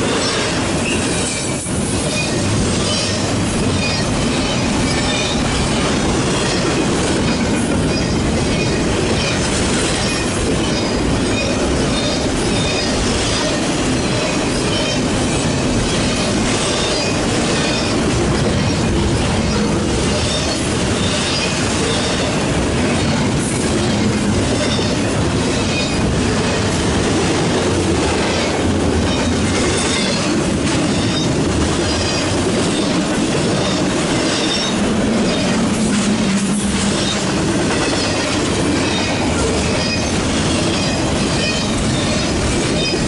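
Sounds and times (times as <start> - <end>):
train wheels rumbling on rail: 0.0 - 43.0
high wheel squeals: 2.1 - 22.4, 23.0 - 26.6, 28.3 - 35.7, 36.8 - 43.0.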